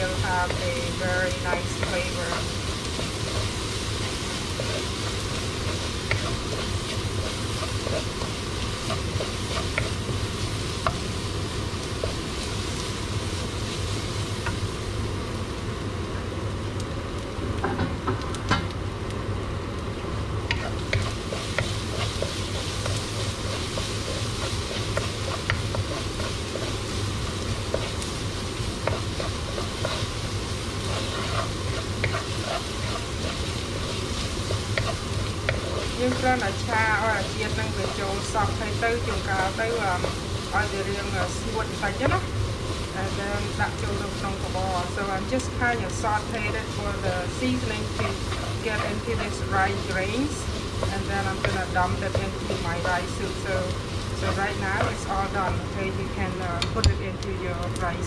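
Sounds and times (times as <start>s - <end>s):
wooden spoon scraping a pan: 0.0s - 11.1s, 20.5s - 55.6s
rice sizzling in a pan: 0.0s - 58.0s.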